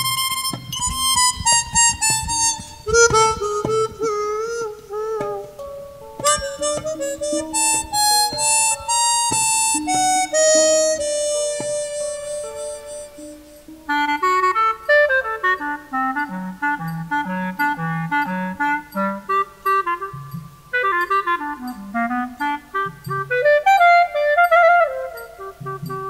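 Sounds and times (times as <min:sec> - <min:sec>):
light percussion knocks: 0:00.0 - 0:13.8
harmonica melody: 0:00.0 - 0:26.0.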